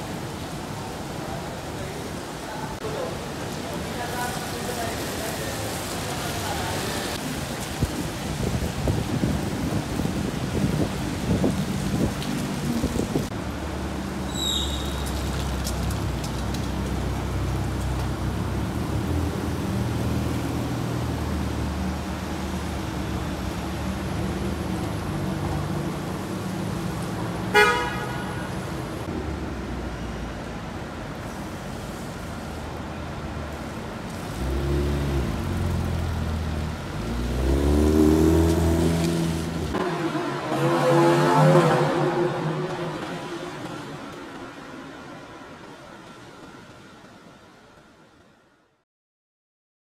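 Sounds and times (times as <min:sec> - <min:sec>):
street traffic: 0:00.0 - 0:48.8
car horn toot: 0:27.5 - 0:28.6
car engine revving: 0:34.3 - 0:43.7.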